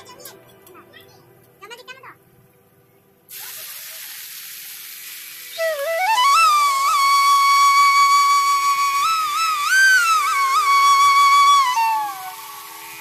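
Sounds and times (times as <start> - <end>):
leaves sizzling in hot oil: 3.3 - 13.0
flute music: 5.5 - 13.0.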